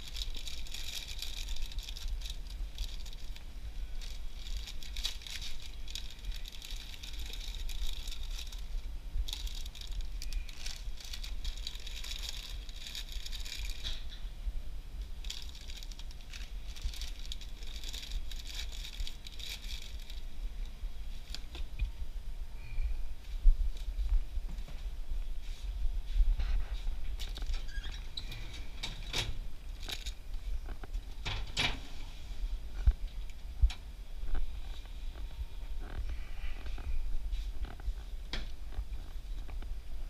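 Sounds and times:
crinkly plastic packaging handled: 0:00.0 - 0:14.2, 0:15.2 - 0:21.8, 0:27.2 - 0:31.7
low steady hum: 0:00.0 - 0:40.0.

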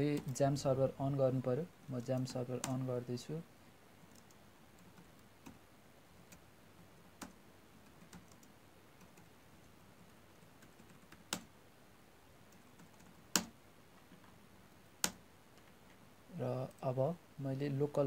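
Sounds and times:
keystrokes on computer keyboard: 0:04.0 - 0:05.6, 0:06.2 - 0:09.4, 0:10.0 - 0:11.5, 0:12.5 - 0:14.4, 0:15.0 - 0:15.9.

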